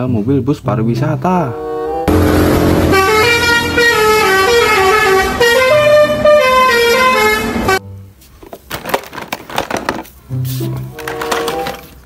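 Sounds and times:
musical bus horn tune: 0:01.3 - 0:08.2, 0:10.3 - 0:11.9.

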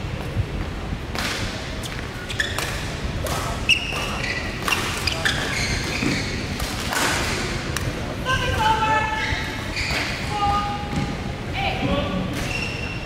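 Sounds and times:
shoes squeaking on court: 0:01.8 - 0:03.0, 0:03.6 - 0:06.6, 0:09.1 - 0:10.3, 0:12.4 - 0:13.0.

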